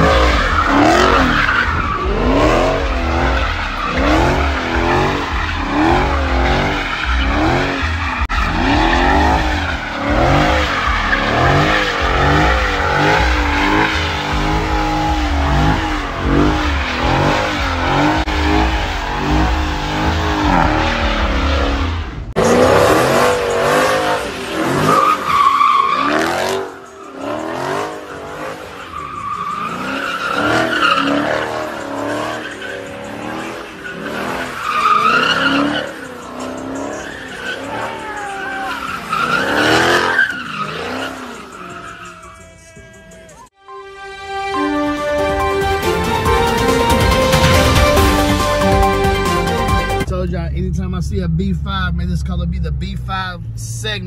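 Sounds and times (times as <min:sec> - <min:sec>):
car engine revving: 0:00.0 - 0:43.5, 0:44.6 - 0:54.0
tyre squeal: 0:22.4 - 0:43.5.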